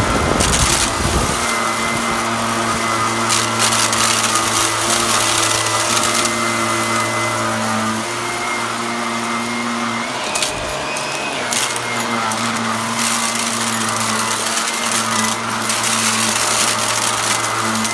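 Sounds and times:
dry grains rattling through vacuum: 0.0s - 17.9s
vacuum cleaner motor humming: 0.0s - 17.9s.

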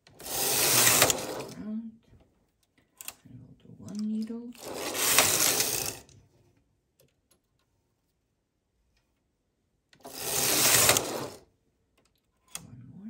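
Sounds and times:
knitting machine carriage sliding: 0.0s - 1.7s, 4.0s - 6.2s, 10.0s - 11.5s.

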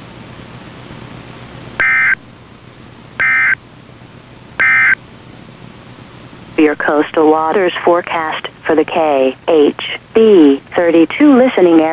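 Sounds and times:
steady radio hiss: 3.0s - 11.9s
warbling digital data tones: 3.2s - 3.6s, 4.6s - 5.0s.

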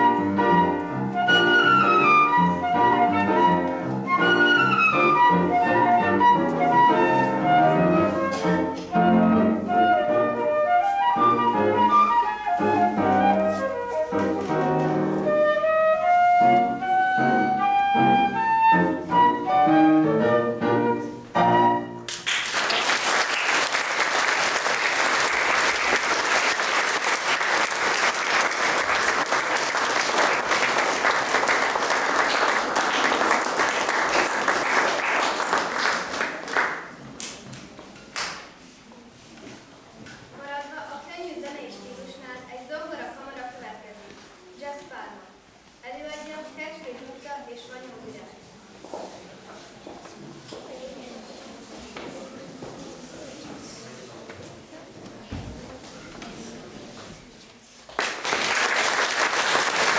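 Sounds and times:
flute: 0.0s - 14.3s, 15.1s - 22.0s
piano: 0.0s - 37.6s
audience applause: 22.1s - 37.0s, 57.9s - 59.9s.

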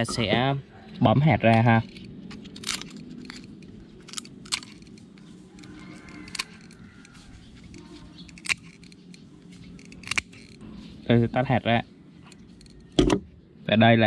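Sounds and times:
pruning shears crunching seed pod: 1.4s - 10.6s.

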